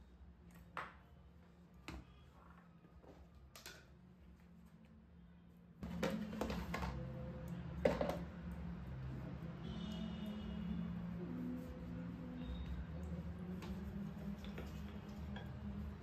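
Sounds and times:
plastic containers knocking: 0:05.8 - 0:07.0.

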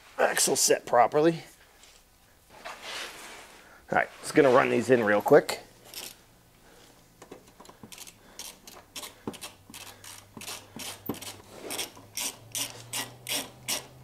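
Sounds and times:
socket ratchet clicking: 0:07.8 - 0:14.0.

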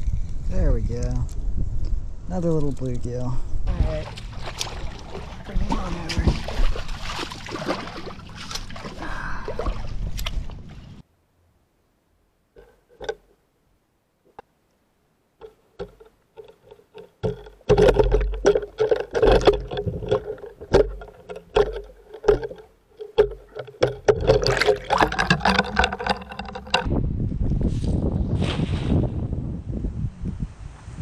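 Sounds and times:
underwater clicks and crackles: 0:10.1 - 0:10.5, 0:12.6 - 0:13.4, 0:15.4 - 0:26.9.

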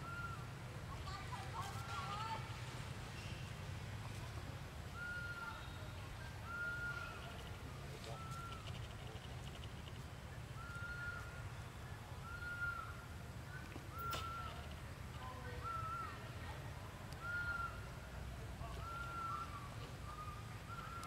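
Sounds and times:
bird whistling call: 0:05.0 - 0:07.4, 0:12.2 - 0:14.7, 0:15.6 - 0:16.2, 0:17.2 - 0:17.8, 0:18.8 - 0:21.0.

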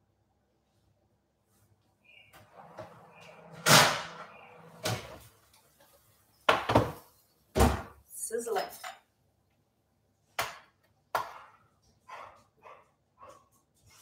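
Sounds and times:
oven door clunk: 0:02.8 - 0:05.1.

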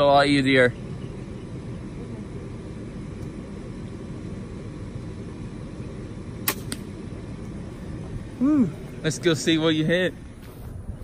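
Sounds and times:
steady low rumble: 0:00.0 - 0:11.0
crossbow string snap: 0:06.4 - 0:06.9.

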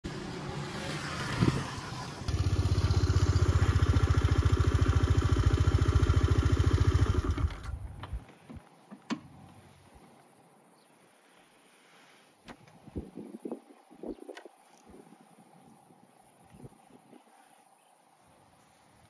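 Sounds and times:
engine running with fast pulse: 0:00.0 - 0:08.2.

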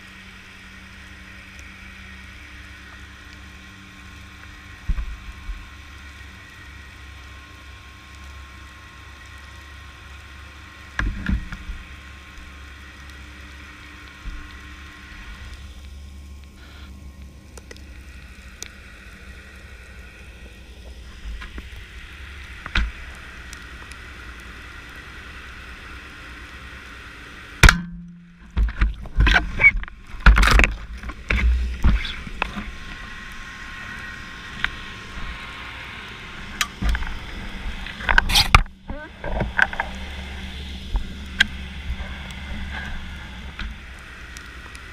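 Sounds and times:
underwater hiss: 0:11.6 - 0:17.0, 0:31.5 - 0:44.9.

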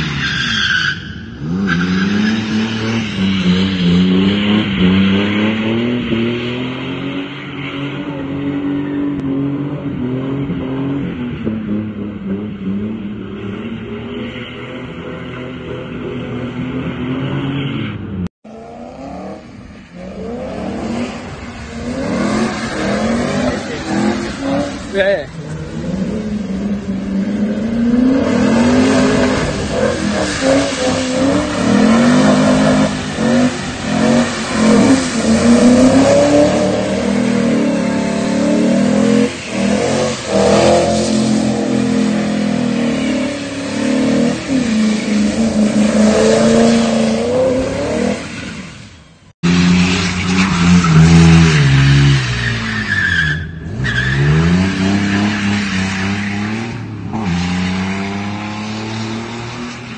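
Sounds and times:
car engines revving: 0:00.0 - 0:59.9
tyres spinning on wet tarmac: 0:21.2 - 0:26.4.

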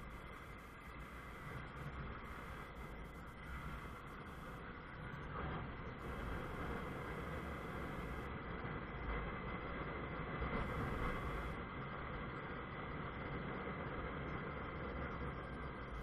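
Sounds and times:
wind and road noise: 0:00.0 - 0:16.0.

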